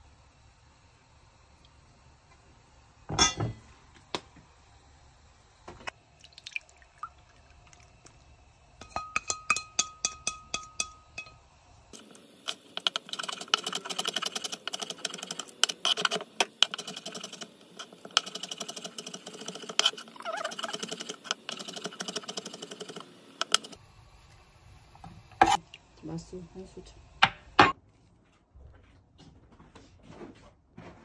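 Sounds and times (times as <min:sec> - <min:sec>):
chopsticks tapping metal bowl: 0:08.8 - 0:11.4.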